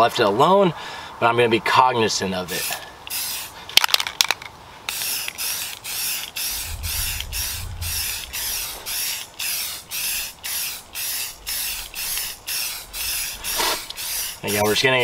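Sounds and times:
spray paint can hissing: 2.5 - 3.6, 4.9 - 14.6.

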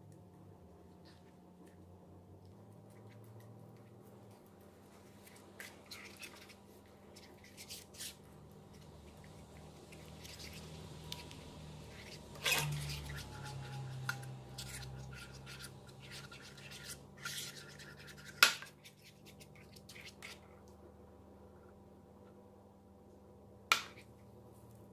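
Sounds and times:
spoon stirring thick paint: 4.9 - 20.5.

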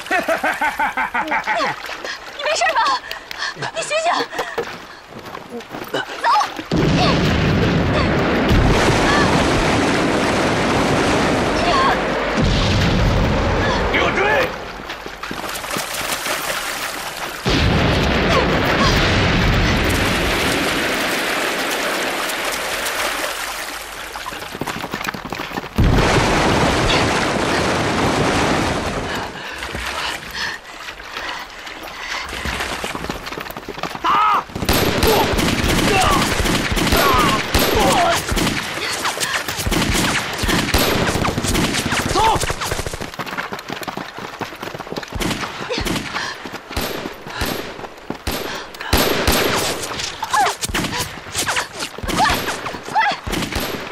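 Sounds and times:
explosions in water: 6.7 - 14.0, 17.4 - 23.2, 25.8 - 29.4
rifle and machine-gun fire: 34.5 - 38.8, 39.5 - 43.1, 46.8 - 50.0.

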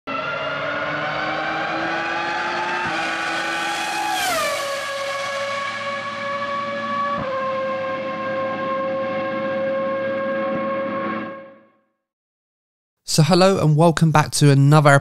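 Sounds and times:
racing car passing by: 0.1 - 11.6.

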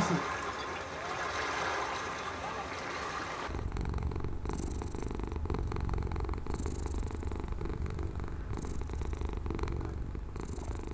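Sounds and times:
cat purring: 3.5 - 10.9.

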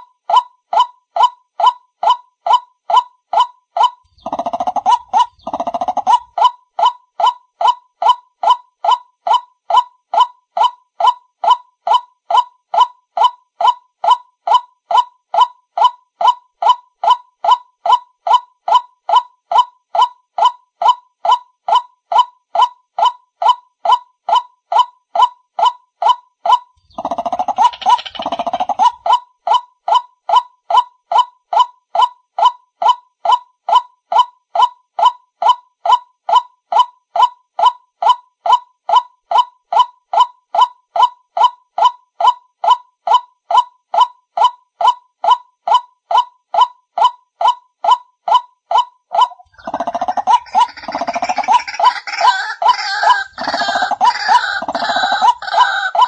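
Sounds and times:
waterhen honking call: 49.6 - 56.0.

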